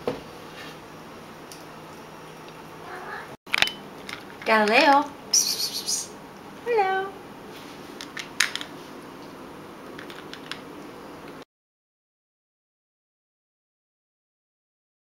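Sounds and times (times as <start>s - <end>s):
cat meowing: 2.8s - 3.4s.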